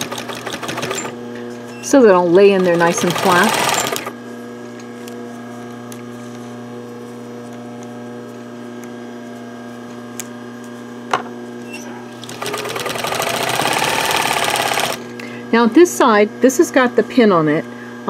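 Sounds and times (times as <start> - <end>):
sewing machine stitching: 0.0 - 1.2, 2.4 - 4.1, 12.2 - 15.0
electrical hum: 0.0 - 18.0.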